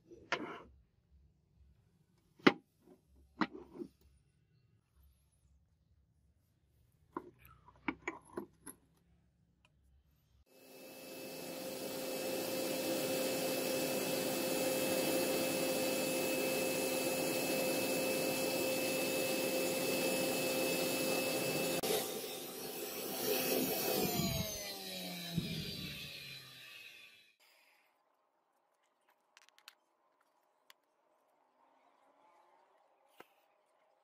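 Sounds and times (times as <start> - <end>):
gas burner rushing hiss: 10.6 - 26.0.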